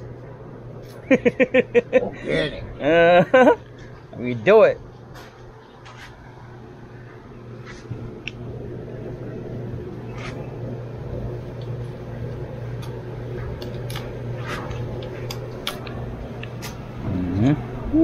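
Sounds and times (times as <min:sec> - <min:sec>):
steady low hum: 0:00.0 - 0:18.0
small clicks and scrapes: 0:10.1 - 0:10.4.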